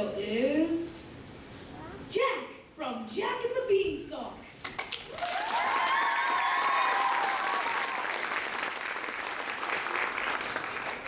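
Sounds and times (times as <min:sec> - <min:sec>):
audience applauding: 0:04.6 - 0:11.0
high-pitched cheer: 0:05.1 - 0:08.5.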